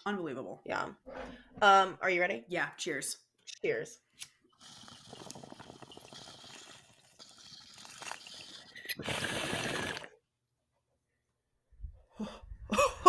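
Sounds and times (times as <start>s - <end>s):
water pipe bubbling: 4.6s - 10.2s.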